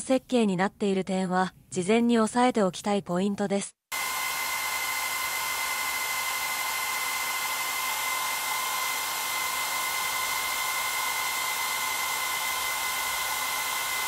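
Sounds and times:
hair dryer running: 3.9s - 14.0s.

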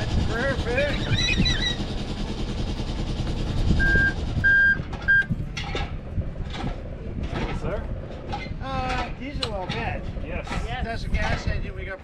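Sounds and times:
boat engine idling: 0.0s - 6.3s
short electronic beeps: 3.8s - 5.3s.

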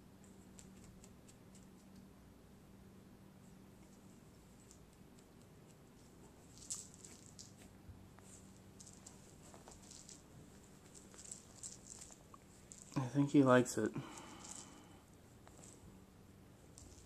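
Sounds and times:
faint low hum: 0.0s - 17.0s
cat playing with toy on carpet: 3.8s - 13.0s, 14.1s - 17.0s.

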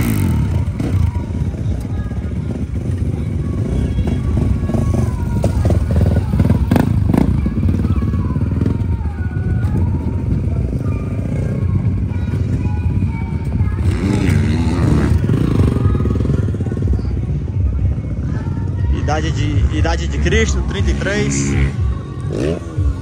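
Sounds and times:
dirt bike engines revving: 0.0s - 23.0s.

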